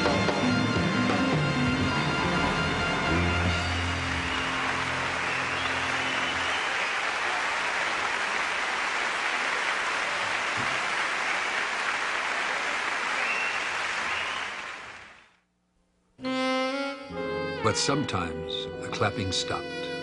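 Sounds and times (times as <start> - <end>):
audience applauding: 3.1 - 15.4.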